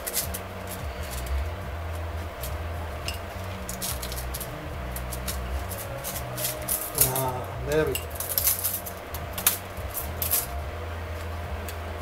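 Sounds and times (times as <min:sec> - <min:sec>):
metal parts clicking and rattling: 0:00.0 - 0:10.6
steady low hum: 0:00.0 - 0:12.0.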